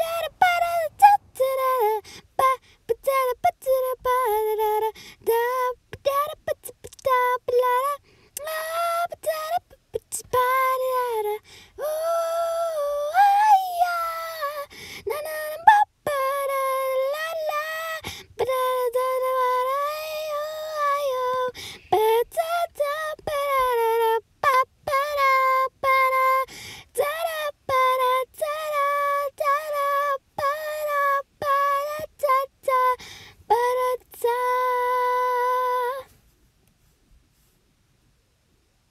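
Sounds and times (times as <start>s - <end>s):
woman singing wordless tune: 0.0s - 36.2s.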